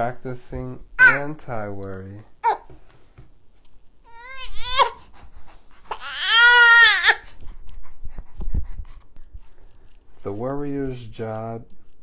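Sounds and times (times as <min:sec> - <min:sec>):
baby crying: 0:01.0 - 0:01.2, 0:02.4 - 0:02.7, 0:04.1 - 0:05.1, 0:05.9 - 0:07.3.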